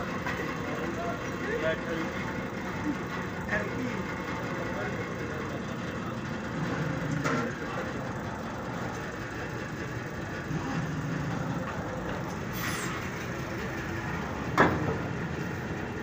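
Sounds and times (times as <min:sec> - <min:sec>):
hydraulic press running: 0:00.0 - 0:16.0
short squeal falling in pitch: 0:12.5 - 0:13.1.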